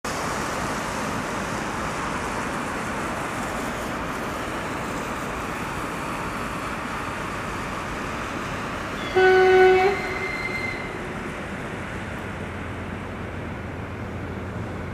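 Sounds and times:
train running noise: 0.1s - 14.9s
train horn blast: 9.0s - 11.1s.

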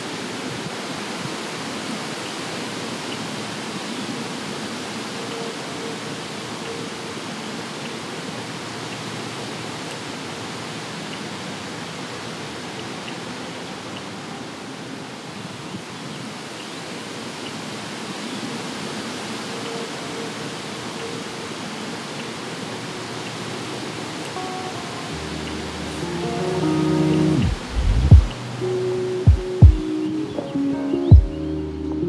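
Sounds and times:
steady rushing noise: 16.9s - 30.2s.

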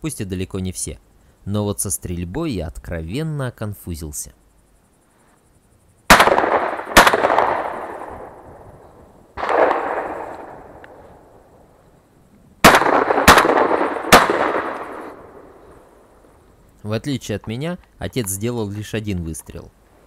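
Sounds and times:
shotgun shots: 6.1s - 8.5s, 9.4s - 10.8s, 12.6s - 15.5s
distant dull shotgun shot: 6.1s - 11.5s, 12.6s - 16.0s.

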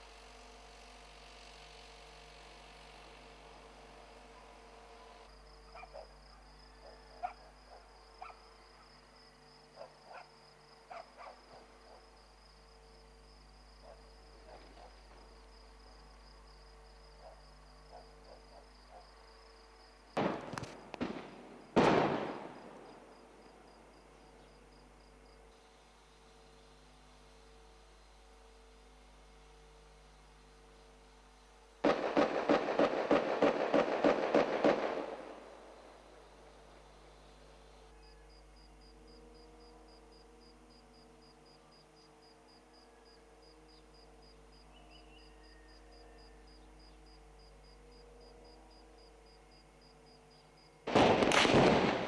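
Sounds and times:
crickets trilling: 0.0s - 52.0s
distant gunfire pops: 20.2s - 22.8s, 31.8s - 35.3s, 50.9s - 52.0s
sharp cracks: 20.2s - 22.8s, 31.8s - 35.4s, 50.9s - 52.0s
loud echoing explosion: 50.9s - 52.0s.

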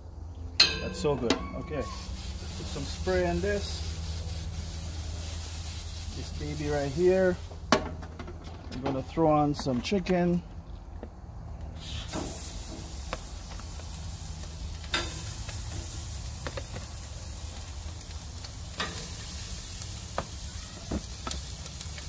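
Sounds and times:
chicken sizzling on a grill: 1.4s - 7.8s, 11.8s - 22.0s.

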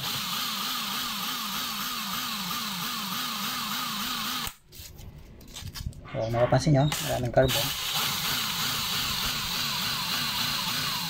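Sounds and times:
electric drill running: 0.0s - 4.6s, 6.9s - 11.0s.

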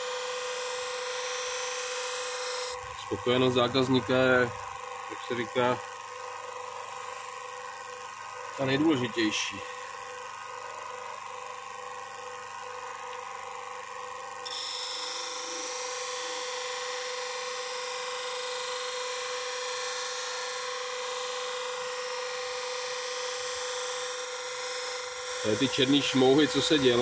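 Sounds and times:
bench grinder humming: 0.0s - 27.0s
blade rubbing polishing wheel: 24.6s - 27.0s.

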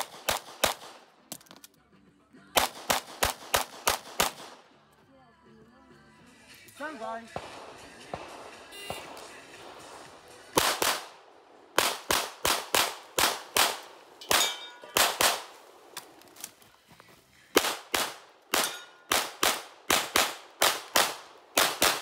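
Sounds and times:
pistol shots: 0.0s - 1.3s, 2.6s - 4.8s, 7.2s - 16.0s, 17.5s - 22.0s.

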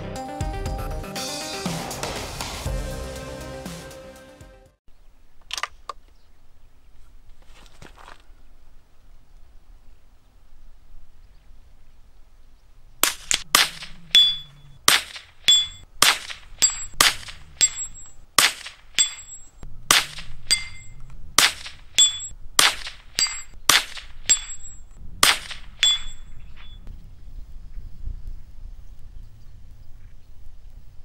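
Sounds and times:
gunshots hitting steel target: 13.0s - 26.8s
metallic ring of steel plate: 14.1s - 14.6s, 15.5s - 15.8s, 17.6s - 18.1s, 19.0s - 19.6s, 20.5s - 21.0s, 21.9s - 22.3s, 24.3s - 24.9s, 25.8s - 26.8s.

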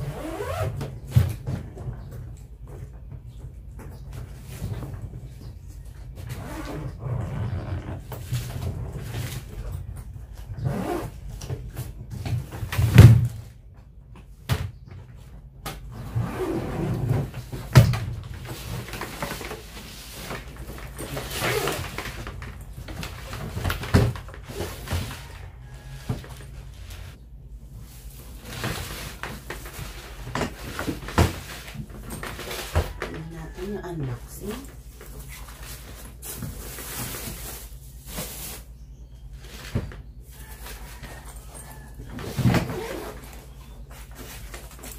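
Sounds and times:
zipper being opened: 0.0s - 0.8s, 6.3s - 9.5s, 10.6s - 11.4s, 15.9s - 17.3s, 20.9s - 22.2s, 42.4s - 43.4s.

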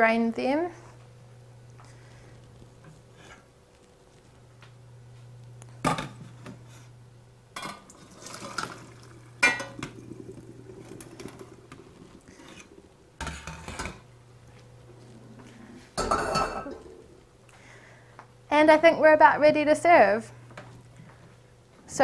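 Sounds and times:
hot water pouring out: 7.8s - 14.2s.

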